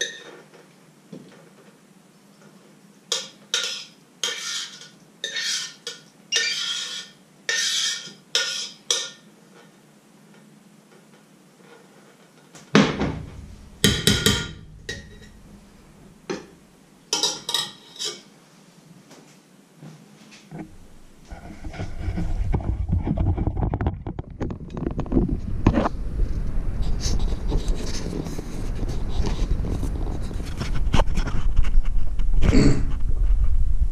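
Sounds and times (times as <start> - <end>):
metal spoon scraping a pot: 0.0 - 0.4, 3.1 - 9.7, 13.3 - 15.6, 17.2 - 18.3.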